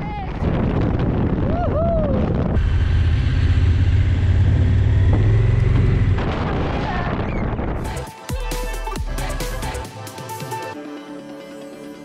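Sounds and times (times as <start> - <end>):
wind and road noise: 0.0 - 7.8.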